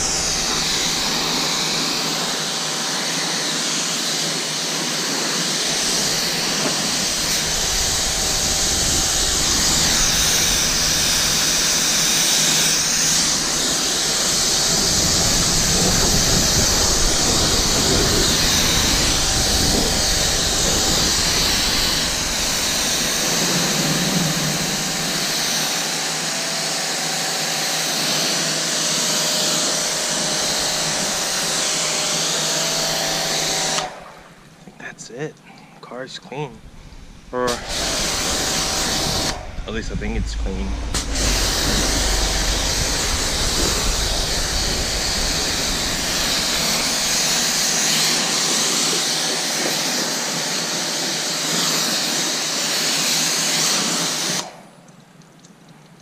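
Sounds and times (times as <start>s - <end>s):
faint hum: 0.0s - 2.4s, 5.6s - 25.6s, 29.6s - 48.6s
pressure washer spray hiss: 0.0s - 34.0s, 37.3s - 39.8s, 41.0s - 54.5s.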